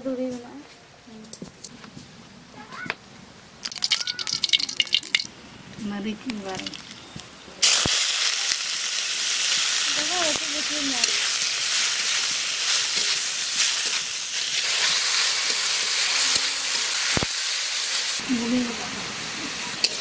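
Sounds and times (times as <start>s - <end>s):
leaves sizzling in hot oil: 1.4s - 20.0s.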